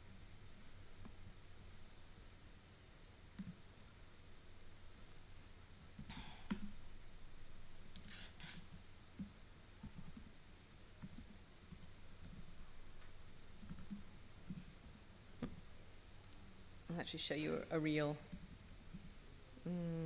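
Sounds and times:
laptop keys and trackpad clicking: 0:06.0 - 0:06.8.

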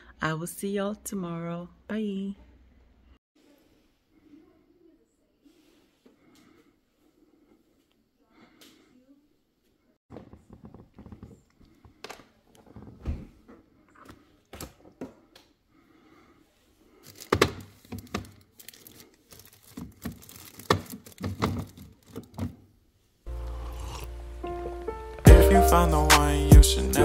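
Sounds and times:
objects being handled: 0:16.9 - 0:22.6
music with a steady beat: 0:24.8 - 0:27.0.

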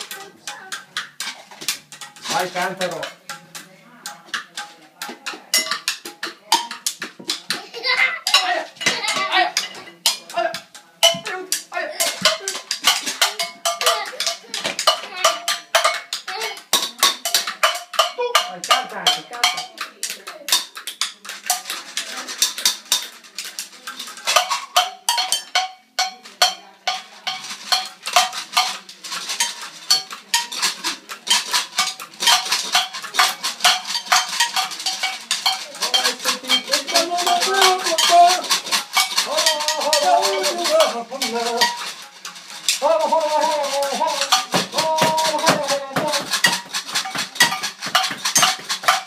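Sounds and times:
sticks beating metal dishes: 0:00.0 - 0:49.0
stick striking racket strings: 0:26.9 - 0:49.0.

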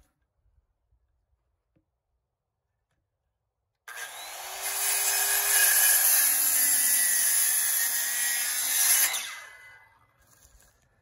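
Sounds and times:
circular saw cutting wood: 0:03.9 - 0:10.5.

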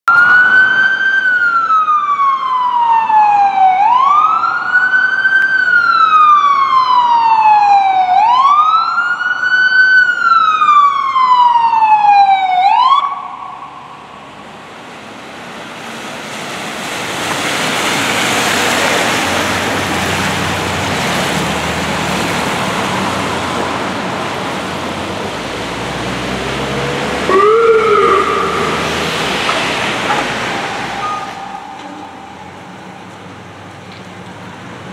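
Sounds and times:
emergency siren wailing: 0:00.1 - 0:33.6
traffic on wet street: 0:00.1 - 0:34.9
siren blip: 0:27.3 - 0:33.1.

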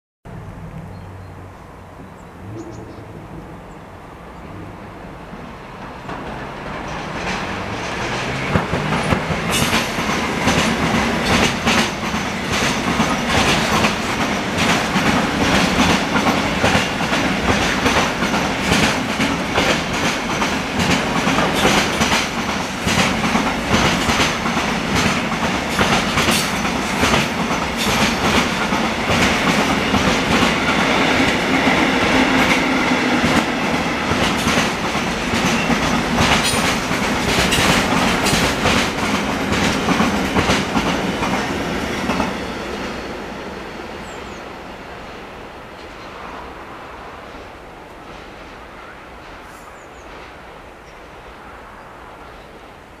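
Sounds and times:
freight train rumble: 0:00.2 - 0:53.0
train wheels clacking over rail joints: 0:05.8 - 0:42.9.

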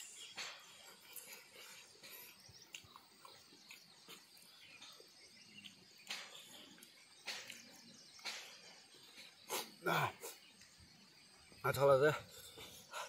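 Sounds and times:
soft chewing: 0:00.5 - 0:10.8
sharp lip smacking: 0:09.4 - 0:10.4.

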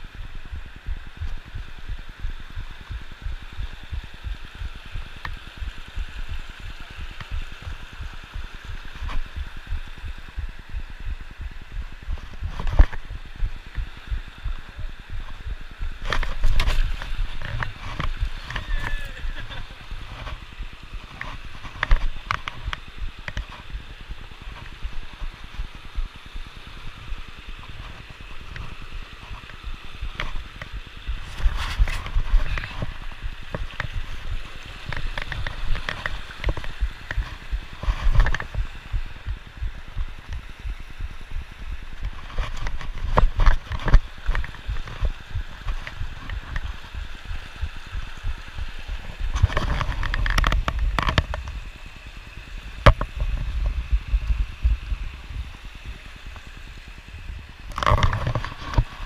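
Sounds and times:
creek rushing over rocks: 0:00.0 - 0:59.0
camera jostling knocks and rumble: 0:00.2 - 0:18.7, 0:29.4 - 0:51.7, 0:52.8 - 0:55.4, 0:57.7 - 0:59.0.

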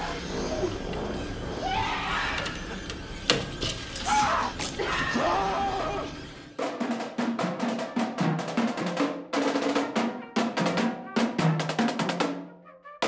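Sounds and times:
people yelling: 0:01.5 - 0:02.8, 0:04.0 - 0:06.2
marching drumline playing: 0:06.6 - 0:12.5.

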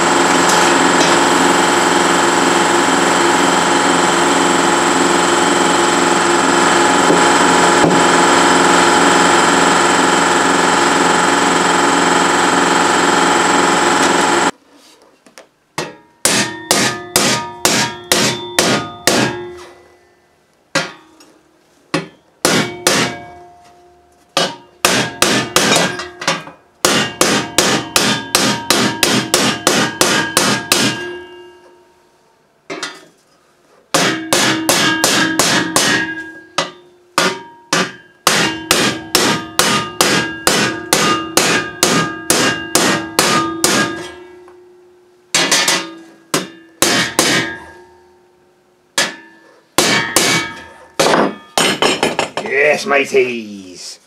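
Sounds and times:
loud power tool: 0:00.0 - 0:14.5
hammer striking steel sheet: 0:15.8 - 0:19.8, 0:22.0 - 0:23.8, 0:24.4 - 0:31.8, 0:33.9 - 0:48.2, 0:49.0 - 0:52.5
steel ringing: 0:15.8 - 0:20.2, 0:22.0 - 0:32.0, 0:34.0 - 0:48.4, 0:49.0 - 0:52.1.

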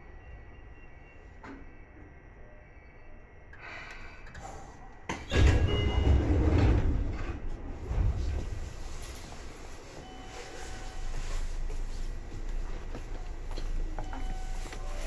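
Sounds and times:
train sliding doors closing: 0:03.6 - 0:15.0.

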